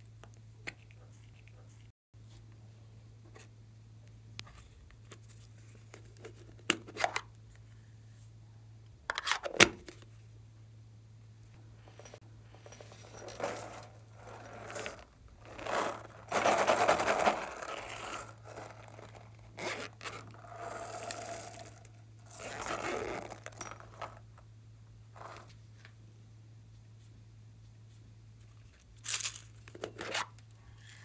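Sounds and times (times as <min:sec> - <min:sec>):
steady low hum: 0:00.0 - 0:31.0
toy and containers scraping and knocking: 0:11.9 - 0:24.2.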